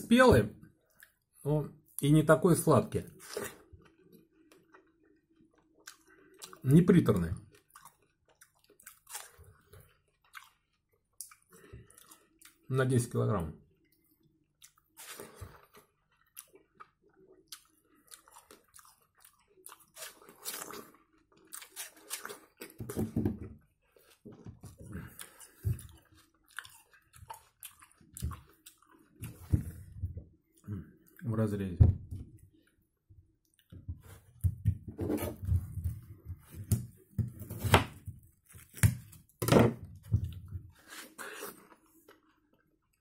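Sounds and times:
chewing: 3.2s - 6.6s, 7.5s - 12.6s, 13.8s - 22.8s, 24.8s - 29.9s.

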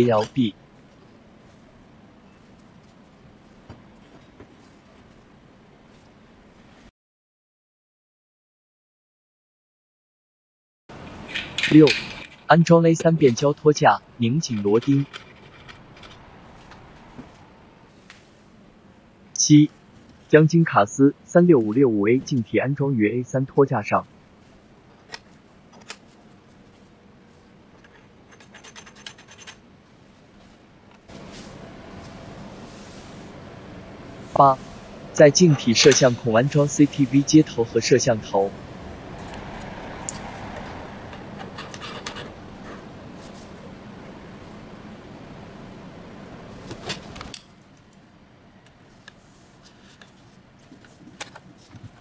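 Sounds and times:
background hiss: 31.1s - 38.5s.

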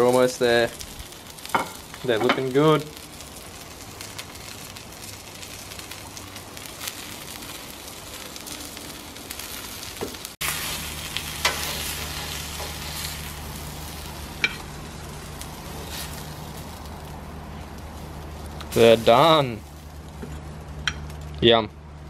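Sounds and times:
fish fillets sizzling on hotplate: 0.0s - 20.2s
low steady hum: 10.4s - 22.0s.

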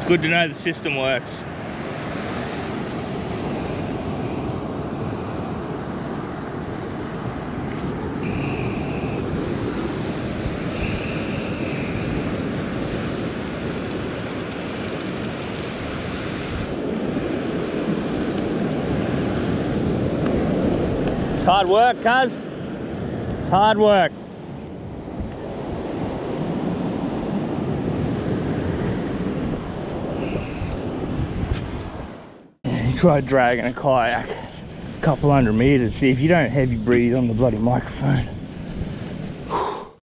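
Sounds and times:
wind buffeting microphone: 1.7s - 21.7s, 24.5s - 32.3s, 34.6s - 39.9s
surf breaking on beach: 7.8s - 18.0s.

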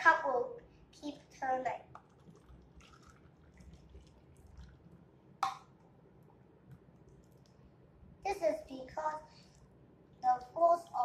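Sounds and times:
water trickling into a basin: 1.9s - 5.7s.

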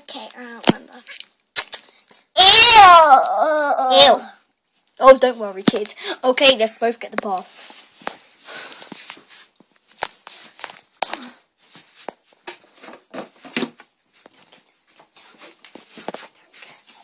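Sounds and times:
rustling and scraping: 7.1s - 17.0s.

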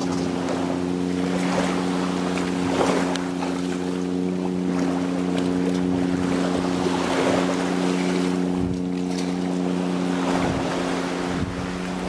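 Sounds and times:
small engine running: 0.0s - 12.0s
water lapping: 0.0s - 12.0s
wind buffeting microphone: 5.8s - 12.0s.

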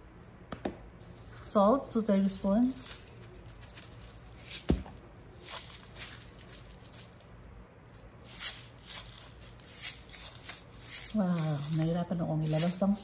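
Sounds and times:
low steady hum: 0.0s - 13.0s
salt shaking and tapping: 8.3s - 13.0s.

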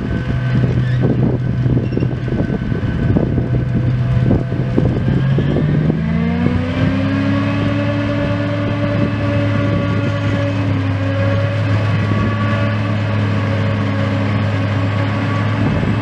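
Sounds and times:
heavy diesel drone: 0.0s - 16.0s
higher engine note rising: 0.0s - 16.0s
low buffeting: 0.0s - 16.0s.

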